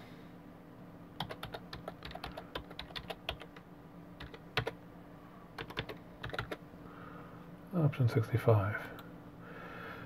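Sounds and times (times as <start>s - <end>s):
faint steady hum: 0.0s - 10.0s
keyboard typing: 1.2s - 4.8s, 5.6s - 6.6s.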